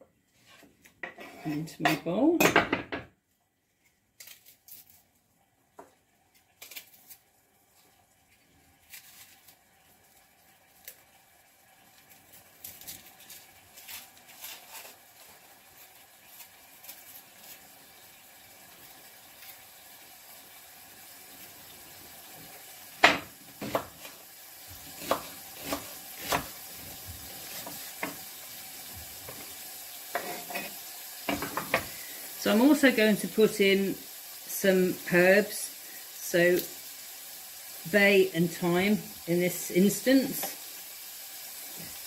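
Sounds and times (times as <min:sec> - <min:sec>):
meat searing in oil: 0:04.9 - 0:42.0.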